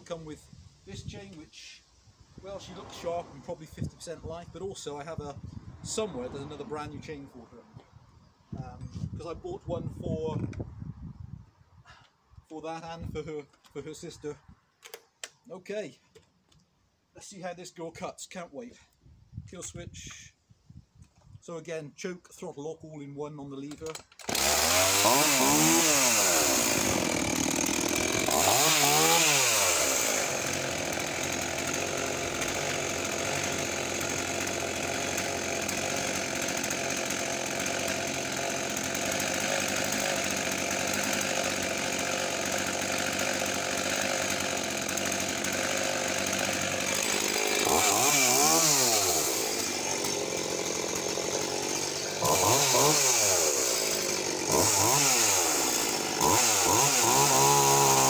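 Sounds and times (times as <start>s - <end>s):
chainsaw idling and revving: 2.4s - 4.2s, 5.9s - 7.3s, 23.7s - 58.0s
chainsaw pull-start: 2.4s - 4.2s, 14.8s - 15.4s, 23.6s - 58.0s.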